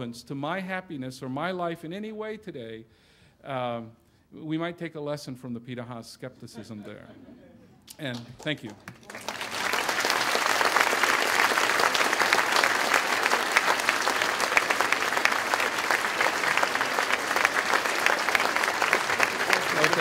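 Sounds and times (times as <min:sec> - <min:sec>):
audience applauding: 0:08.0 - 0:20.0.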